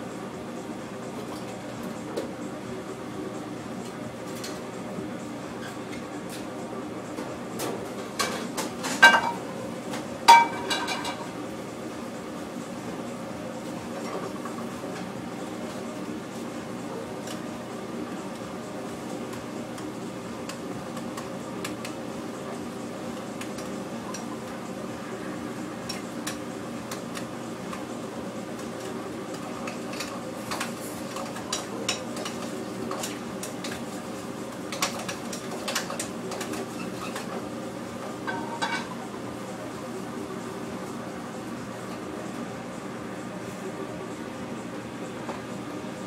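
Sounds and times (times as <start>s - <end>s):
hum of running equipment: 0.0s - 46.0s
dishes and utensils clattering: 8.2s - 9.4s, 10.3s - 11.3s, 38.2s - 39.0s.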